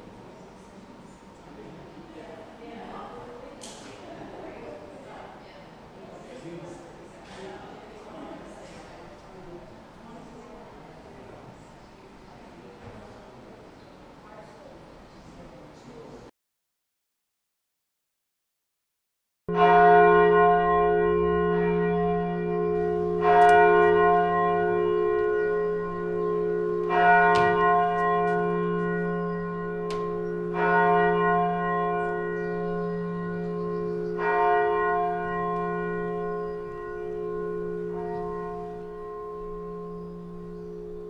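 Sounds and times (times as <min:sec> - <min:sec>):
church bell tolling: 0:19.5 - 0:41.0.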